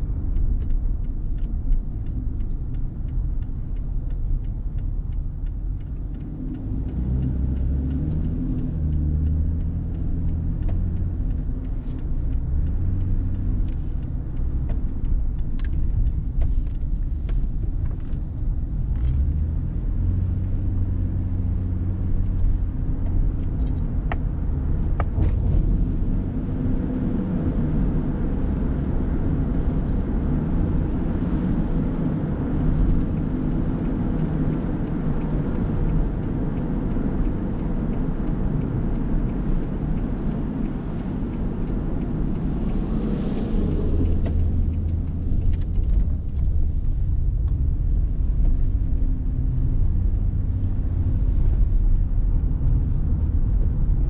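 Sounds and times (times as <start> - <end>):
faint clicks: 0.0 - 21.6, 32.6 - 54.0
car engine and road rumble: 0.0 - 54.0.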